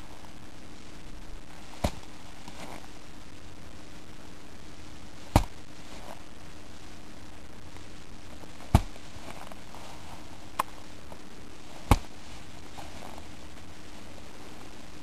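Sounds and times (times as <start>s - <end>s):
sack thudding onto shovel blade: 1.7s - 2.8s, 5.3s - 6.2s, 8.6s - 9.6s, 11.8s - 12.2s.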